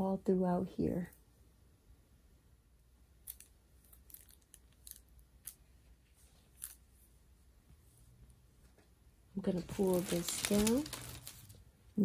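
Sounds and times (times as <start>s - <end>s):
plastic-covered canvas ticks and rustles: 9.4s - 11.6s.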